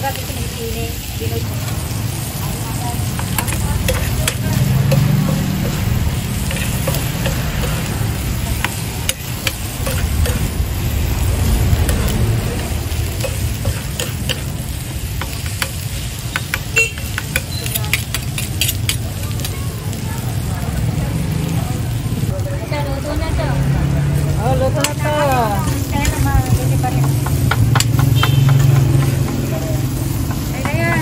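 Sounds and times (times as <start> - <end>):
food sizzling on hot plate: 0.0 - 31.0
low steady rumble: 1.4 - 16.1
metal spoons scraping and clinking: 3.2 - 8.0, 8.6 - 10.6, 13.2 - 14.6, 15.2 - 19.1.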